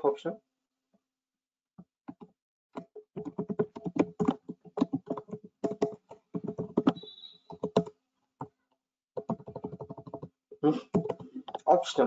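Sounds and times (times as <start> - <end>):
keyboard typing: 2.1 - 7.9, 9.2 - 11.8.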